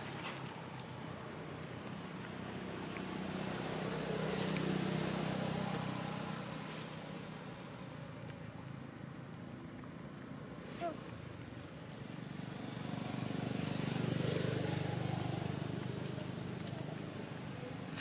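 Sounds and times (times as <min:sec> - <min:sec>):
passing vehicle engine hum: 0:00.0 - 0:18.0.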